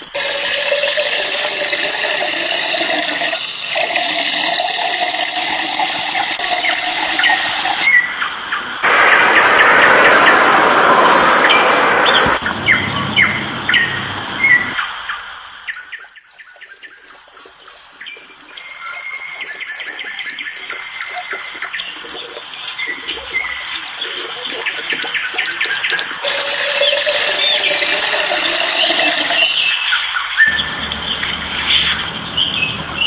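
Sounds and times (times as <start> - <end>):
fountain water splashing: 0.0 - 7.9, 15.3 - 29.8.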